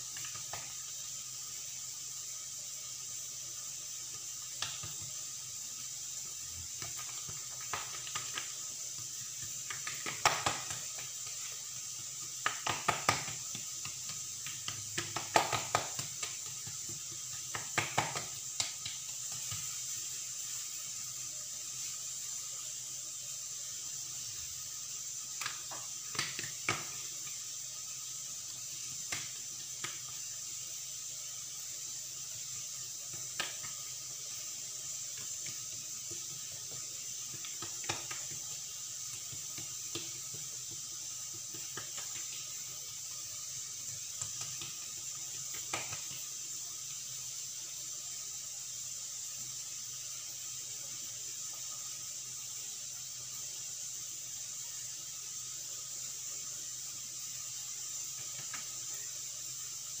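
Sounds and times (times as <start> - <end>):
steady hiss: 0.0 - 60.0
hands tapping dough on countertop: 0.1 - 0.8, 4.4 - 5.2, 6.6 - 20.0, 25.3 - 27.4, 28.5 - 30.2, 33.0 - 34.0, 34.8 - 42.8, 43.7 - 46.3.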